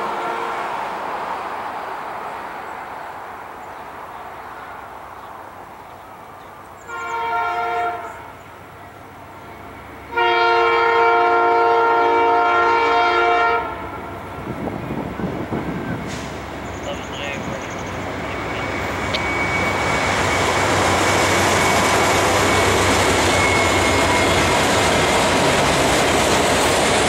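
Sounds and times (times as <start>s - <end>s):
locomotive air horn blasts: 0.0s - 0.8s, 6.8s - 8.4s, 10.1s - 14.2s.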